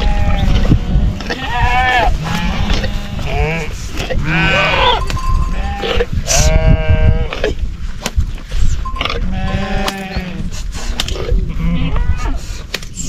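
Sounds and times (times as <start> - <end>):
sheep bleating: 0.0 - 7.3, 9.0 - 10.4.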